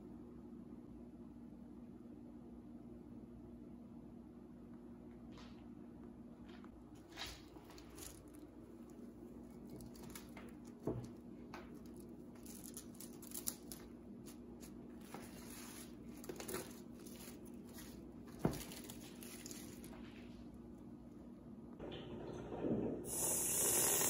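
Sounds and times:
cling wrap crinkling: 7.0 - 20.8.

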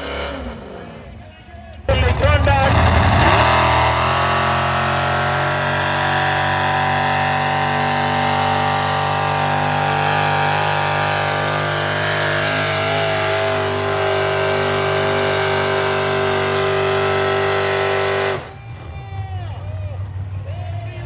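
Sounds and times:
tractor engine at high revs: 0.0 - 1.2, 1.9 - 21.0.

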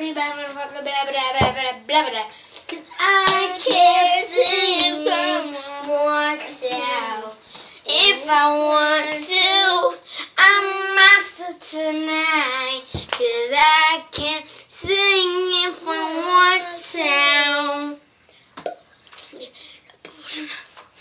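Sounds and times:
child singing high notes: 0.0 - 14.1.

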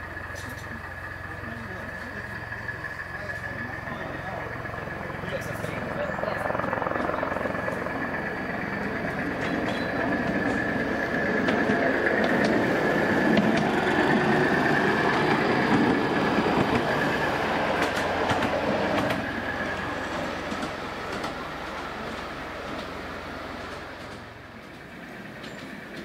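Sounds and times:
electric locomotive whine: 0.0 - 26.0
miniature train wheels clicking: 6.7 - 22.9.

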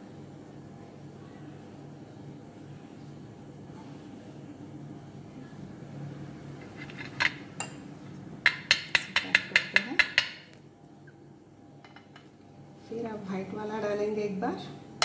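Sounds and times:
spoon clinking against steel vessel: 8.5 - 10.5.

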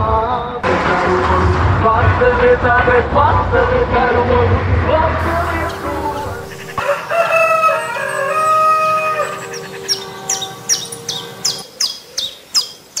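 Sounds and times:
bird chirping: 5.2 - 13.0
rooster crowing: 5.6 - 11.9.

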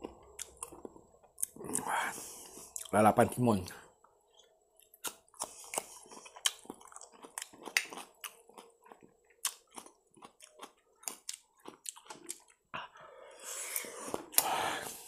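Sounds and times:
wet chewing with crisp crunches: 0.0 - 2.9, 4.3 - 12.7.

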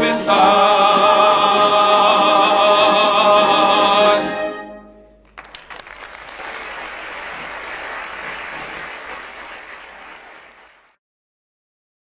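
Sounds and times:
soprano and man singing hymn: 0.0 - 4.5
applause: 5.2 - 11.0.

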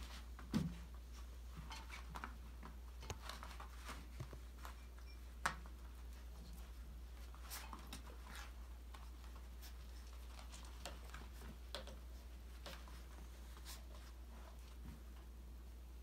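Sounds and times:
light taps and clicks of paws: 5.4 - 15.2.

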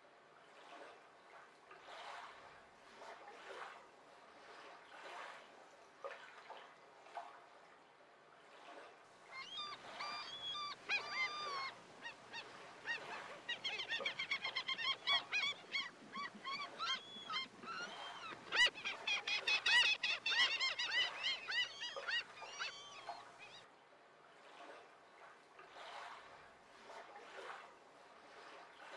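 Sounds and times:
faint surf: 0.0 - 28.9
flock of birds calling: 9.4 - 23.4.

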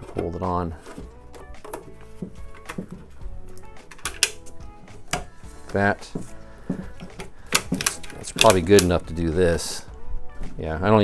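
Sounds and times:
rubber bands snapping: 6.6 - 9.0.

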